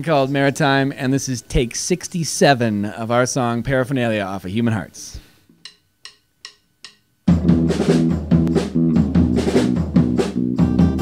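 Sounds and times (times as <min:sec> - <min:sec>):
drumstick count-in clicks: 0:05.6 - 0:07.1
rock band playing: 0:07.3 - 0:11.0.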